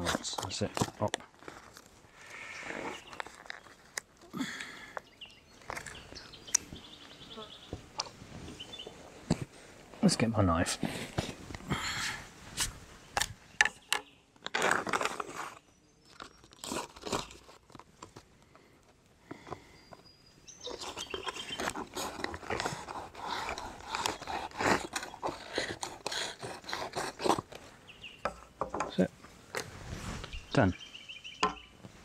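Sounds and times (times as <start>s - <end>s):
knife cutting crinkly foil pouch: 14.4s - 17.9s, 20.7s - 27.6s.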